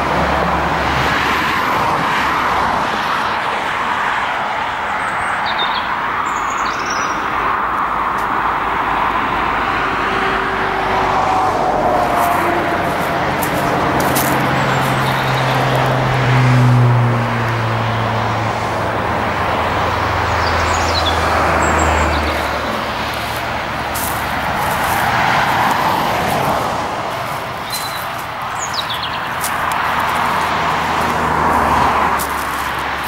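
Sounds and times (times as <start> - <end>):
heavy vehicle engine: 0.0 - 4.9, 7.2 - 33.0
tyre noise of passing traffic: 0.0 - 33.0
bird chirps: 27.6 - 29.3.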